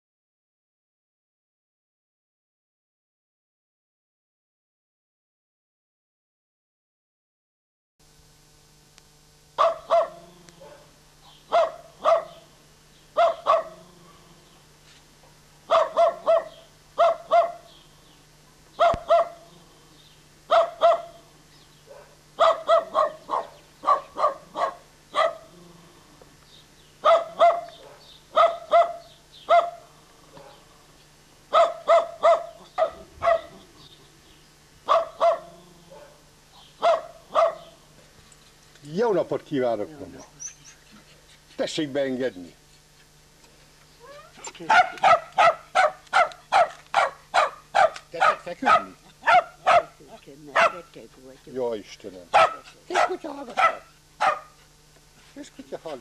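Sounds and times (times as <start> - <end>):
faint steady hum: 8.0 - 56.0
dog barking: 9.6 - 12.5, 13.2 - 13.9, 15.7 - 17.7, 18.8 - 19.5, 20.5 - 21.3, 21.9 - 25.5, 27.0 - 30.6, 31.5 - 33.6, 34.8 - 36.2, 36.8 - 37.8, 44.7 - 50.0, 50.6 - 50.9, 52.3 - 54.6.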